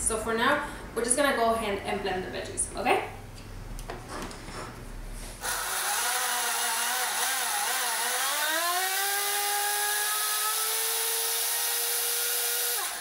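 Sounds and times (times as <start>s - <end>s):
blender whining: 5.4s - 13.0s.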